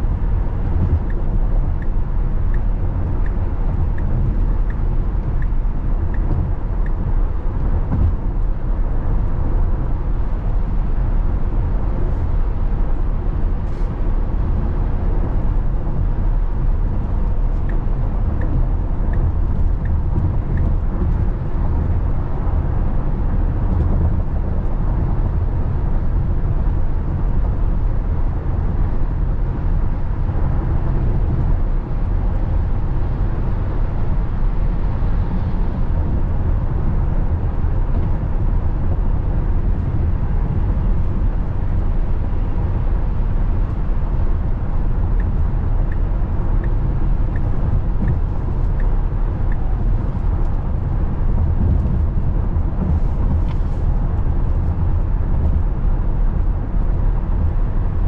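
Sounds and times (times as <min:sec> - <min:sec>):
tyre and wind noise in cabin: 0:00.0 - 0:58.0
turn signal ticking: 0:00.8 - 0:07.1.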